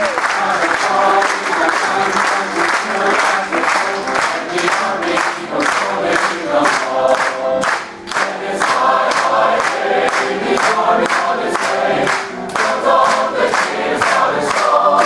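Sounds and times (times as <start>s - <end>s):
mixed choir singing: 0.0s - 15.0s.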